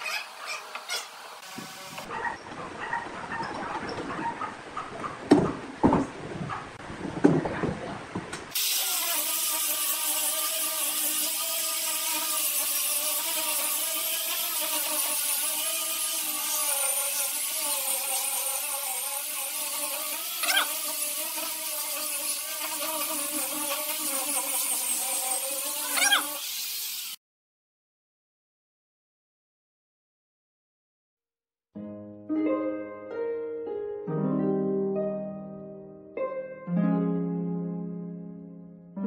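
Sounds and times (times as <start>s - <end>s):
angle grinder sanding wood: 0.0s - 2.1s, 8.6s - 27.2s.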